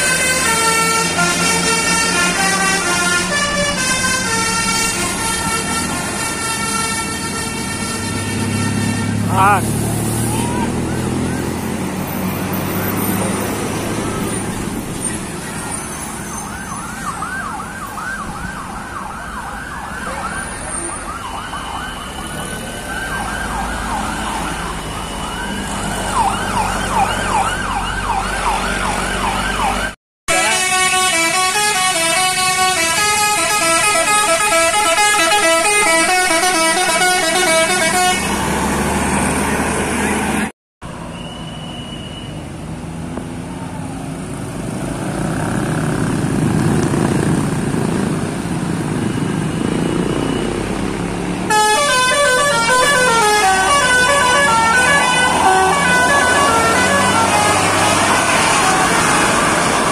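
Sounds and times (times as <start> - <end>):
multi-tone horn melody: 0.0 - 9.7, 30.3 - 38.4, 51.5 - 59.9
warbling bus horn: 0.0 - 10.9, 30.3 - 38.5, 51.5 - 59.9
road traffic and engines: 0.0 - 59.9.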